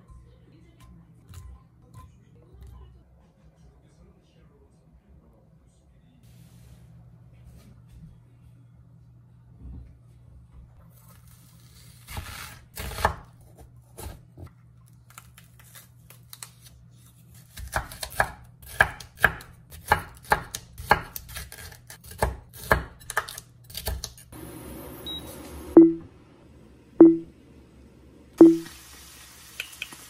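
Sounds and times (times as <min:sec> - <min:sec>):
knife chopping on wooden board: 0:17.5 - 0:24.2.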